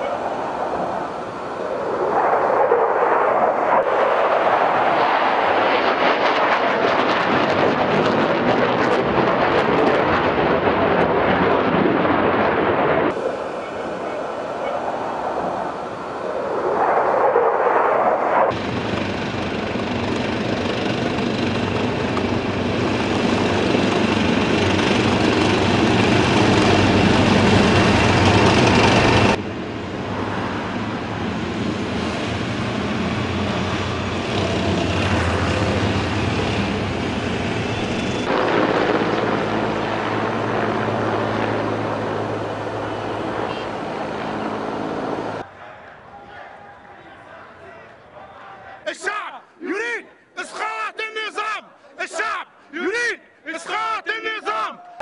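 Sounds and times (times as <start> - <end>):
fighter jet flying over: 0.0 - 45.6
helicopter flying: 0.0 - 46.1
tank engine humming: 18.6 - 45.4.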